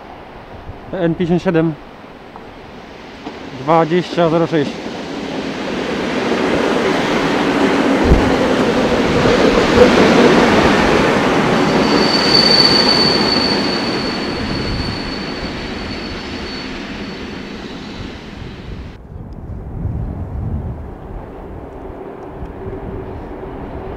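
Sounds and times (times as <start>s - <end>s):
train wheels rumbling on rail: 0.0s - 19.0s
high-pitched squeal: 9.6s - 19.0s.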